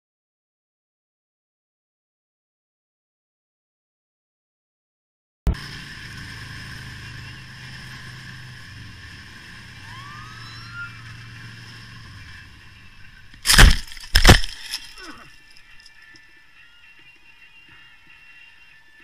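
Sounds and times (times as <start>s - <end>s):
motorcycle engine running: 5.5s - 14.6s
road noise: 5.5s - 19.0s
motorcycle crashing: 10.0s - 15.9s.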